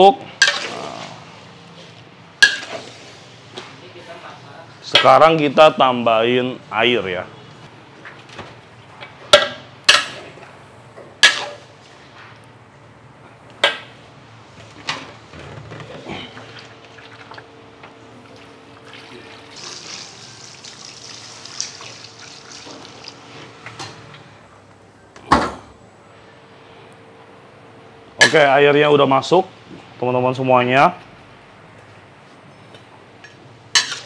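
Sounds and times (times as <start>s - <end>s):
water pouring into a wok: 18.8s - 23.2s.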